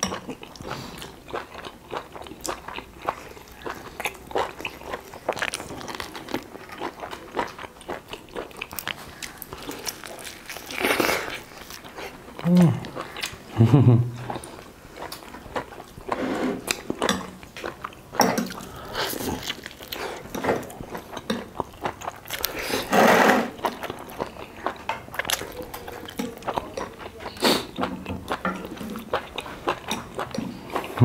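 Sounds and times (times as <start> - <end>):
biting and chewing food: 0.0 - 13.6, 14.3 - 31.0.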